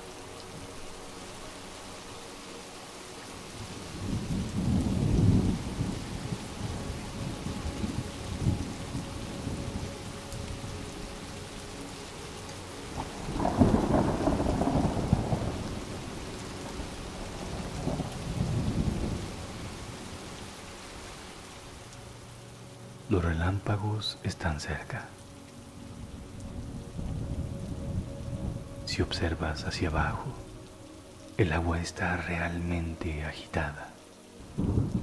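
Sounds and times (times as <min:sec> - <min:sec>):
heavy rain: 0:00.0 - 0:35.0
rolling thunder: 0:03.7 - 0:09.9, 0:13.0 - 0:19.9, 0:34.4 - 0:35.0.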